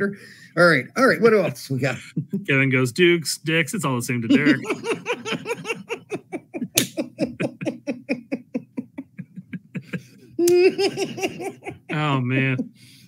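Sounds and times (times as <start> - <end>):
men laughing: 4.3 - 12.8.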